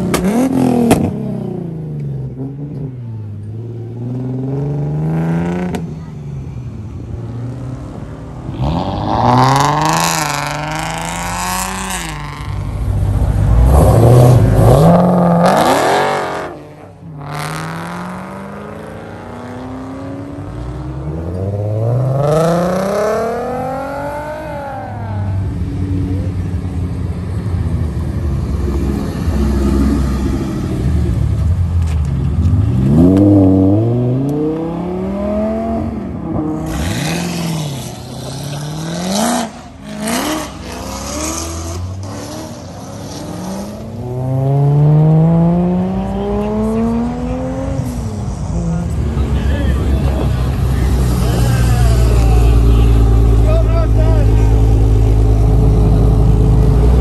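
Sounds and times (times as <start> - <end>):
sports car engines revving: 0.0 - 57.0.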